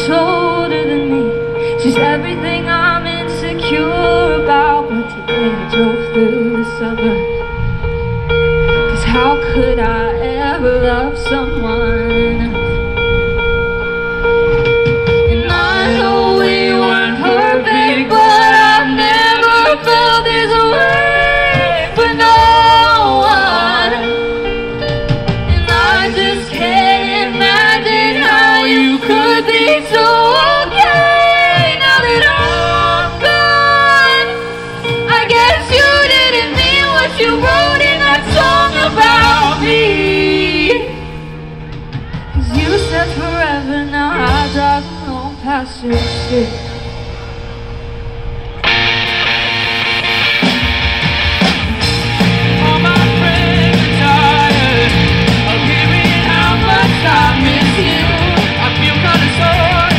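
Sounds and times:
woman singing: 0:00.0 - 0:07.4, 0:08.9 - 0:12.8, 0:15.3 - 0:24.3, 0:25.5 - 0:41.3, 0:42.4 - 0:46.7, 0:52.6 - 0:59.9
live band playing: 0:00.0 - 0:59.9.

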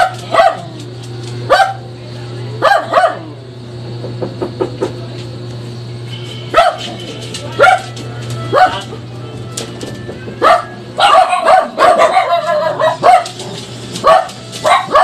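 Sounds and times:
dog barking: 0:00.0 - 0:00.8, 0:01.5 - 0:01.9, 0:02.6 - 0:03.3, 0:06.5 - 0:07.0, 0:07.6 - 0:08.9, 0:10.4 - 0:15.0.

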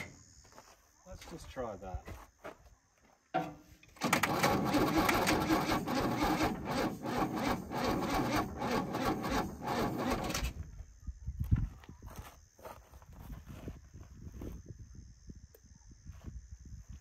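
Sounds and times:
starter motor cranking engine: 0:03.9 - 0:10.7.

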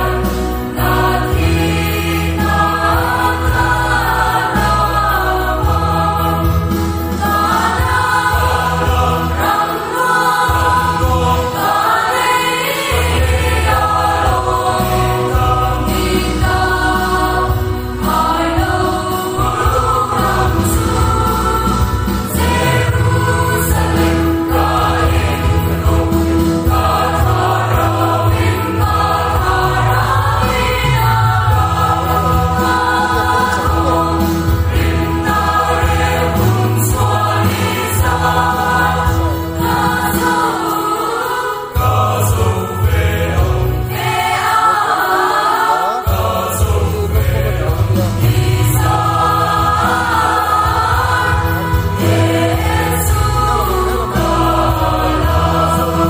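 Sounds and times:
choir singing gospel: 0:00.0 - 0:56.0
steady bass line: 0:13.0 - 0:40.1, 0:46.1 - 0:56.0.

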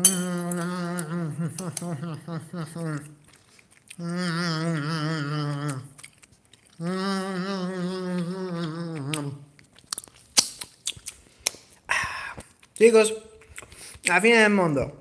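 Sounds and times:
man humming: 0:00.0 - 0:03.2, 0:03.9 - 0:06.0, 0:06.8 - 0:09.5.

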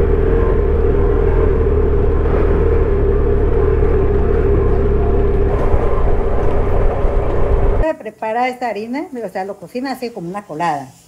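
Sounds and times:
motorcycle engine rumbling: 0:00.0 - 0:07.8.

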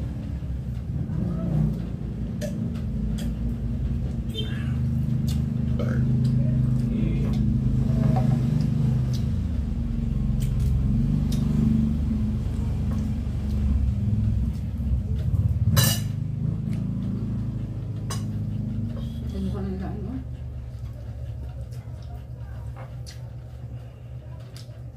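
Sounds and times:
low steady rumble: 0:00.0 - 0:24.9
cutlery clinking against dishes: 0:15.8 - 0:16.2.

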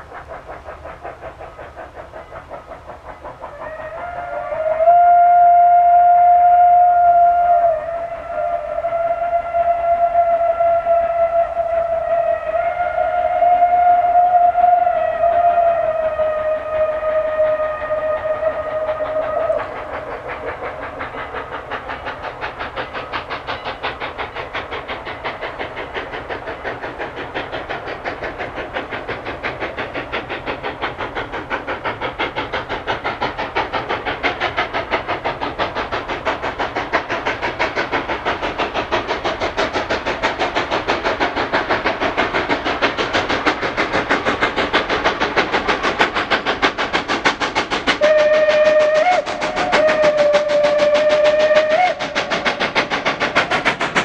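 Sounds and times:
steam locomotive chuffing: 0:00.0 - 0:54.0
steam whistle blast: 0:03.5 - 0:20.0, 0:48.0 - 0:52.7.

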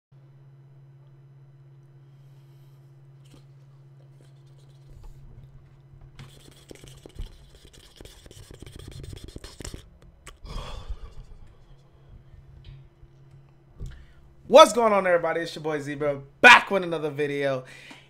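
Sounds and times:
low electrical hum: 0:00.2 - 0:18.0
breathy mouth sound: 0:03.2 - 0:05.3, 0:06.2 - 0:12.5.

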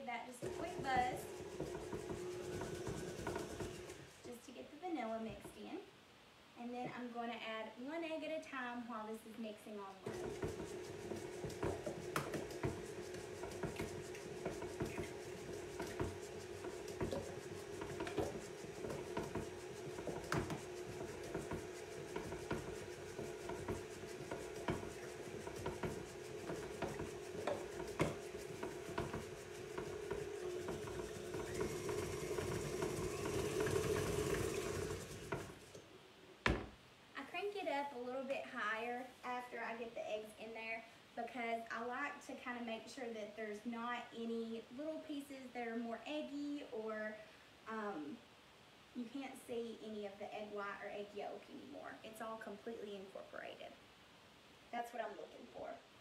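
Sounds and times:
stand mixer motor hum: 0:00.4 - 0:04.1, 0:10.0 - 0:35.8.

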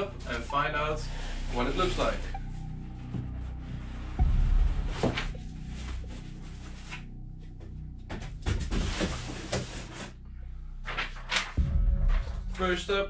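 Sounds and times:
cardboard scraping and rustling: 0:08.2 - 0:10.2.

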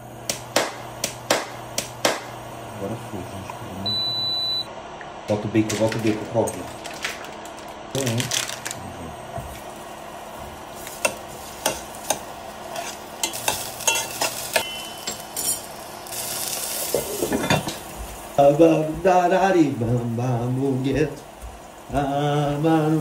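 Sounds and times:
bacon sizzling: 0:06.7 - 0:23.0
metal spoon clinking against pot: 0:13.2 - 0:15.7.

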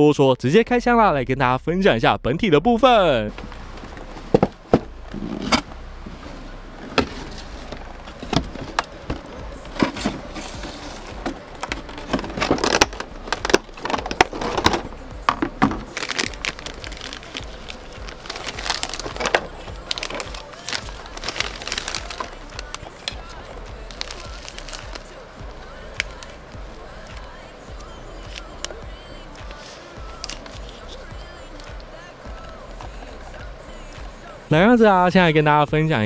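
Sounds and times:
plastic packaging crinkling: 0:06.9 - 0:31.8.

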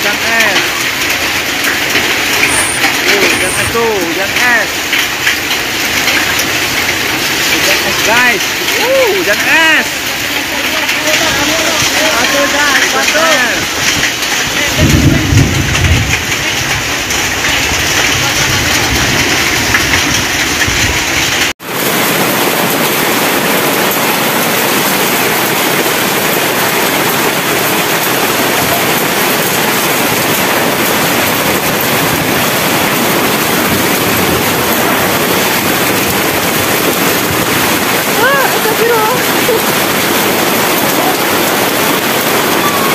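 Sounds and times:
hail and heavy rain pelting: 0:00.0 - 0:42.9.

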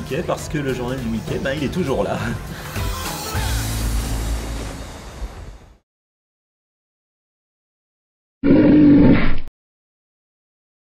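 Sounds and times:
cartoon roar sound effect: 0:08.4 - 0:09.4.

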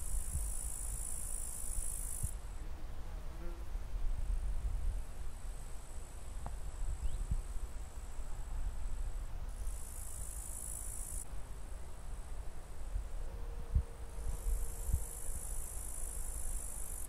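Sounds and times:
insects chirring: 0:00.0 - 0:02.4, 0:09.1 - 0:11.3, 0:12.9 - 0:17.0.

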